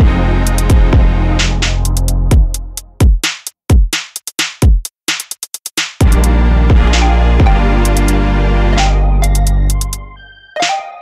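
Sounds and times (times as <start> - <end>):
deep bass note: 6.0 - 10.1.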